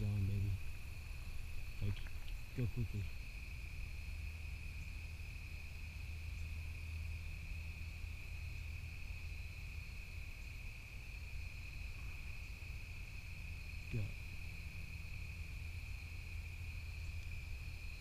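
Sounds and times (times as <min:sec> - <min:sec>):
crickets chirping: 0:00.0 - 0:18.0
low steady rumble: 0:00.0 - 0:18.0.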